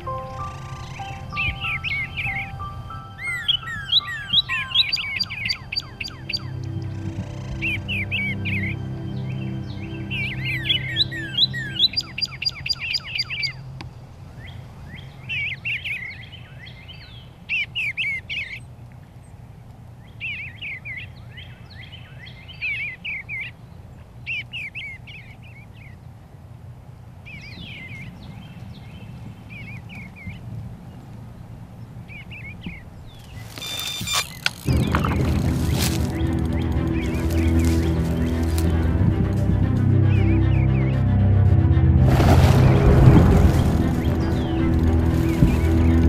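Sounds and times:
faint steady background noise: 0.0 - 36.9
songbirds chirping: 0.0 - 46.0
brief loud rush of noise: 42.0 - 46.0.

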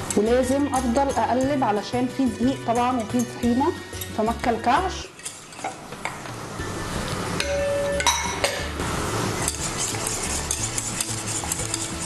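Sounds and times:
wire whisk scraping saucepan: 0.0 - 5.9, 9.3 - 12.0
metal clinking on saucepan: 2.4 - 4.3, 7.4 - 8.7.

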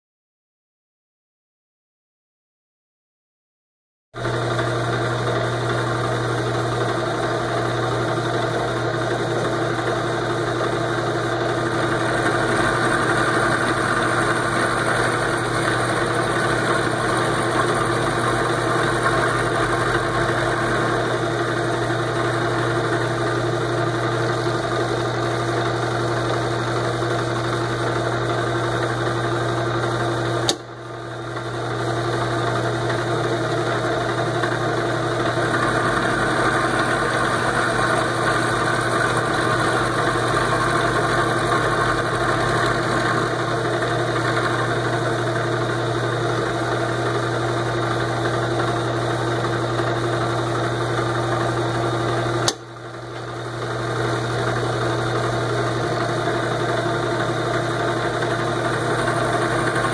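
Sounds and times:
milling machine cutting metal: 4.3 - 30.6, 31.2 - 59.9
sharp click: 30.5 - 30.7, 52.4 - 52.7.

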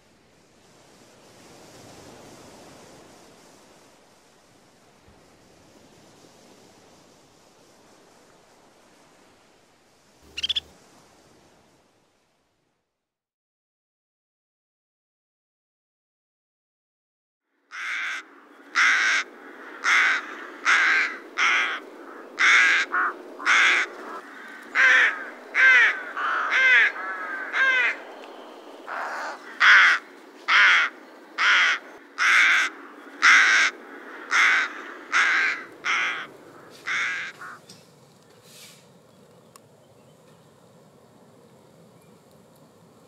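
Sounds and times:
bird harsh calls: 10.2 - 10.7.

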